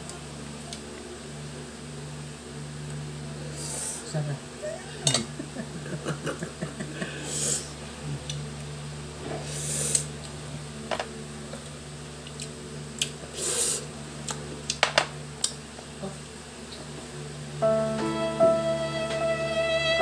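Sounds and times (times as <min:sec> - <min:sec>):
short hissing noises: 0:07.2 - 0:07.7, 0:09.4 - 0:10.1, 0:13.4 - 0:13.9
low hum: 0:17.0 - 0:20.0.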